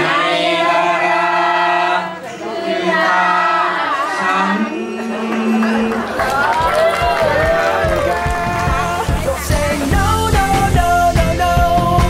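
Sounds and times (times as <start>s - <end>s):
man singing into microphone: 4.2s - 6.2s, 8.0s - 12.0s.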